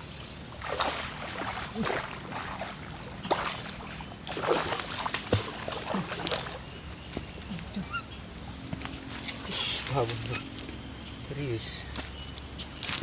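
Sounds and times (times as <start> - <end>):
fish splashing at water surface: 0.6 - 6.6.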